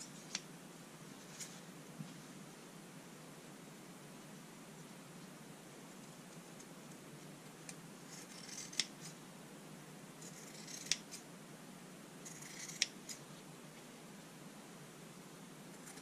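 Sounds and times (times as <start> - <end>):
scissors cutting cloth: 8.1 - 9.2
scissor blades snipping: 8.2 - 9.2, 10.2 - 11.2, 12.3 - 13.2.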